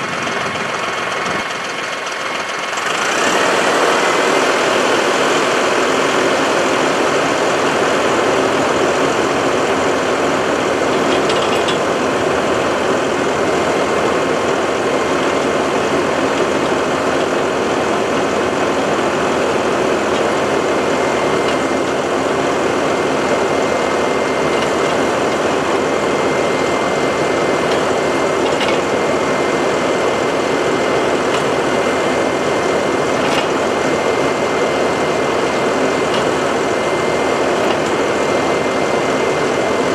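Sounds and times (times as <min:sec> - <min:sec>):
tractor engine running: 0:00.0 - 0:39.9
auger boring into soil: 0:09.2 - 0:39.8.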